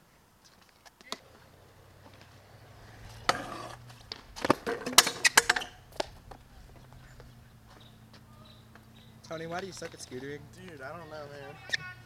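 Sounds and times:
scooter rolling on concrete: 0.4s - 12.0s
scooter hard hit: 3.1s - 6.2s.

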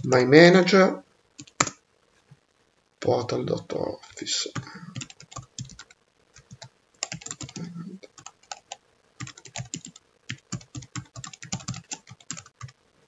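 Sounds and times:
rapid keystrokes on keyboard: 1.4s - 1.8s, 4.0s - 12.8s.

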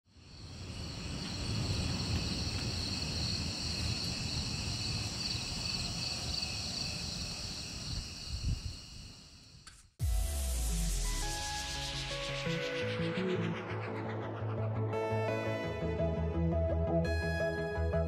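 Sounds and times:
crickets chirring: 0.1s - 9.7s.

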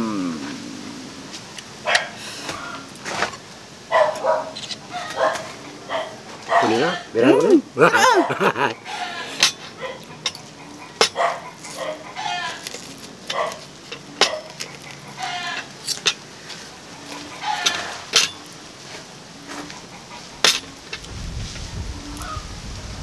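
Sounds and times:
animal calls: 0.0s - 3.1s, 3.9s - 21.0s
knife and fork scraping a plate: 9.2s - 16.2s
sharp cutlery clinks: 17.7s - 18.4s.

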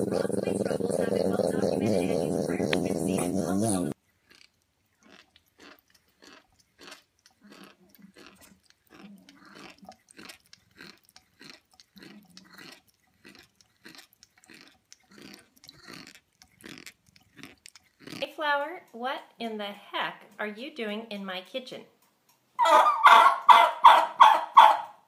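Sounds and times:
cat chewing crunchy food: 0.0s - 18.3s.

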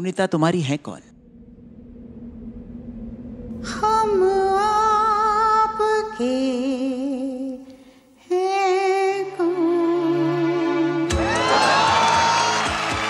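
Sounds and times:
low steady tone: 1.1s - 7.7s
woman singing with vibrato: 3.5s - 11.1s.

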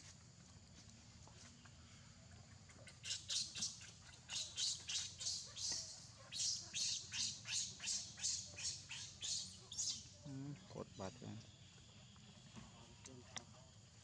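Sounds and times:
baby monkey screaming: 3.1s - 10.1s.

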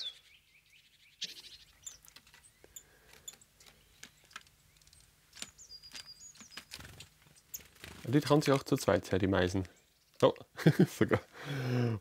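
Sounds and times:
thin high wavering bird call: 0.0s - 0.4s
birds tapping on feeder: 1.6s - 8.6s.

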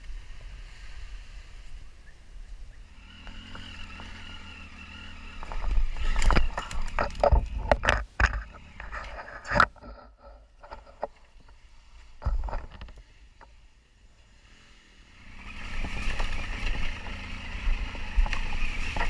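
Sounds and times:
motorcycle engine running: 2.5s - 11.0s, 14.3s - 19.0s
motorcycle crashing into undergrowth: 5.4s - 8.7s.

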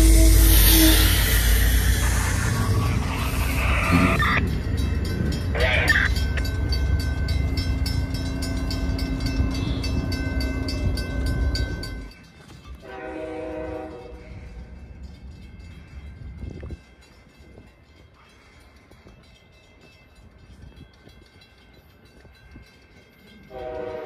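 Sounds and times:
train horn: 0.0s - 1.7s, 12.8s - 14.5s, 23.5s - 24.0s
passing train rumble: 0.0s - 24.0s.

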